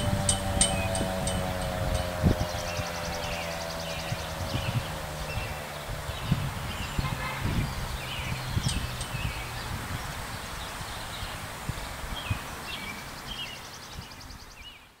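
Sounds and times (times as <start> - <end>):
bird chirps: 0.0 - 9.8
low rumbling: 0.0 - 12.5.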